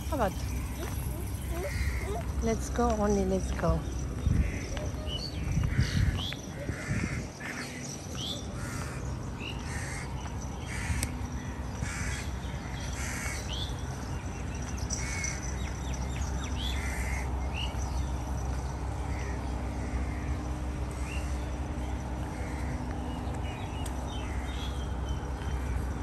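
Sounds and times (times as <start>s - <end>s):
low background hum: 0.0s - 26.0s
crows cawing: 0.6s - 2.4s, 4.4s - 4.8s, 5.7s - 8.0s, 8.6s - 10.1s, 10.7s - 11.1s, 11.8s - 13.6s, 16.8s - 17.3s, 19.1s - 21.4s, 22.2s - 22.9s.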